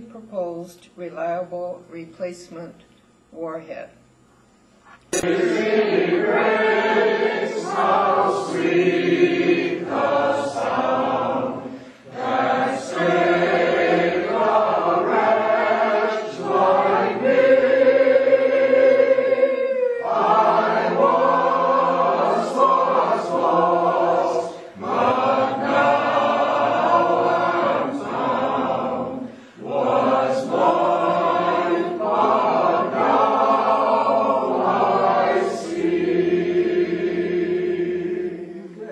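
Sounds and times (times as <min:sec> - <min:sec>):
choir singing: 0:05.2 - 0:38.9.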